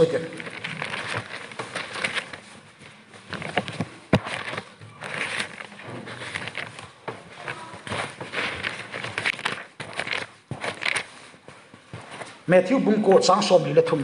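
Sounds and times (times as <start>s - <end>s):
pages being turned: 0.0s - 12.5s.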